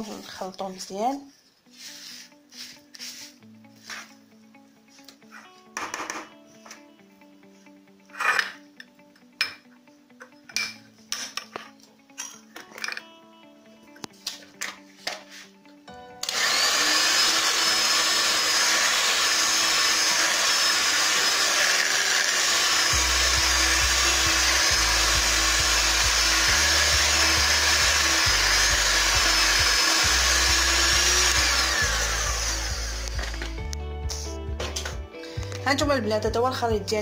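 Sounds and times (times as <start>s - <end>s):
electric hand mixer whining: 16.2s - 33.6s.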